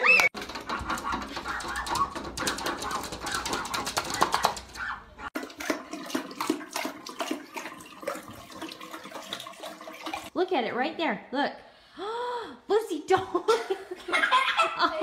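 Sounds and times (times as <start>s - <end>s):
dog paws scratching glass door: 0.0s - 5.3s
dogs drinking: 0.4s - 10.3s
water running from sink tap: 5.4s - 10.4s.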